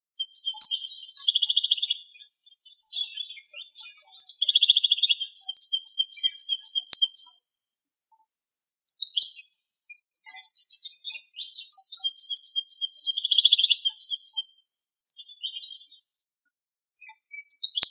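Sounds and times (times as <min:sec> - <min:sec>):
goldfinch singing: 0:00.2 - 0:09.6, 0:10.5 - 0:14.6, 0:17.3 - 0:17.9.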